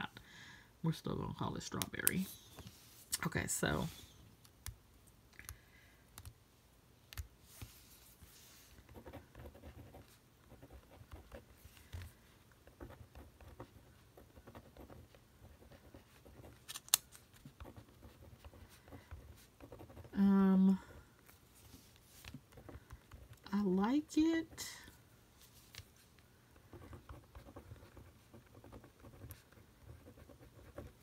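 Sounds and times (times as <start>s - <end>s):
pen scratching on paper: 8.8s - 12.0s, 12.6s - 16.6s, 17.4s - 20.2s, 26.6s - 31.0s.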